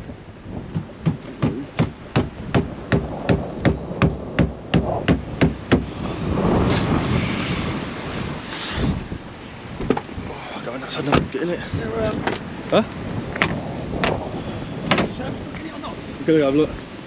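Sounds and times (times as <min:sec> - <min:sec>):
sharp knocks: 0:00.7 - 0:05.9, 0:14.9 - 0:15.2.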